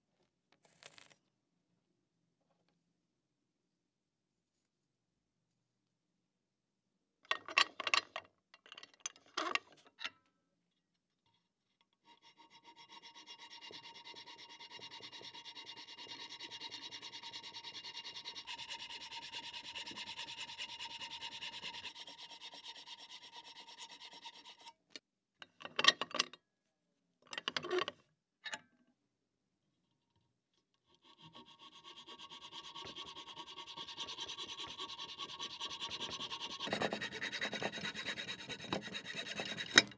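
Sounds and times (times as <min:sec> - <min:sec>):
hacksaw cutting wood: 0:12.6 - 0:24.7, 0:31.0 - 0:39.9.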